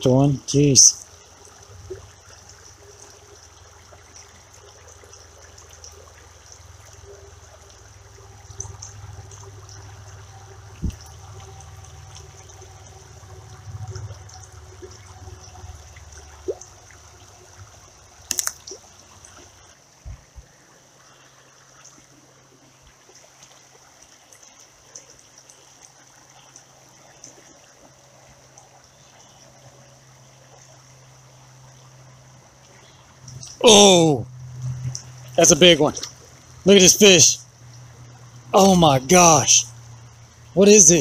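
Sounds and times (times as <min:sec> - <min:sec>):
creek water trickling: 0:00.0 - 0:41.0
fishing rod clicks and knocks: 0:18.3 - 0:18.7.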